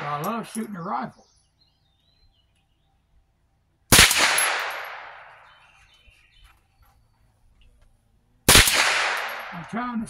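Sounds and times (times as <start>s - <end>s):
rifle shots with echo: 3.9s - 5.6s, 8.5s - 9.8s.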